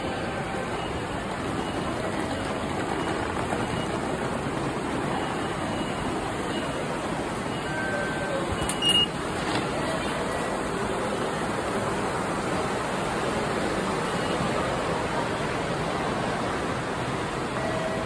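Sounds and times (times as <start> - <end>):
station concourse noise: 0.0 - 18.0
ticket gate beep: 5.0 - 9.2.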